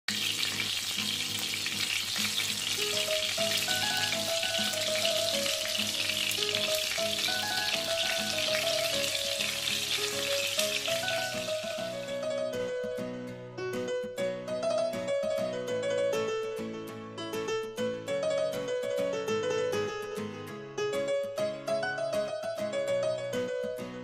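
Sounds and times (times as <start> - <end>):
chicken sizzling in frying oil: 0.1 - 12.3
plucked-string melody: 0.1 - 24.0.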